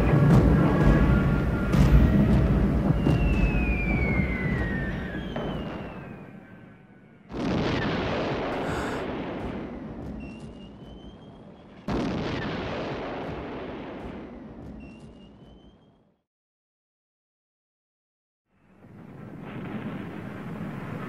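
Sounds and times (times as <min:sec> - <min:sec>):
artillery explosions: 0:00.0 - 0:06.6, 0:07.3 - 0:16.0, 0:18.7 - 0:21.0
faint rising whistle: 0:02.9 - 0:07.0.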